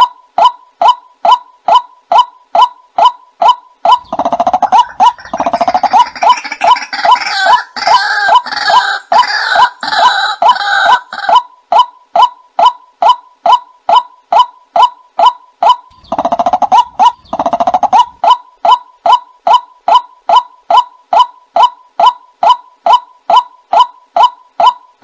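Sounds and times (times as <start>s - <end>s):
bird kwak calls: 0.0s - 25.0s
chattering croaking bird chorus: 3.9s - 11.4s, 15.9s - 18.8s.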